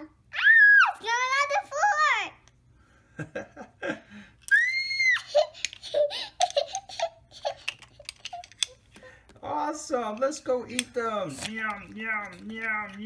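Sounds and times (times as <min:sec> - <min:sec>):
child squealing: 0:00.3 - 0:01.0, 0:04.5 - 0:07.7
child giggling: 0:05.1 - 0:08.8.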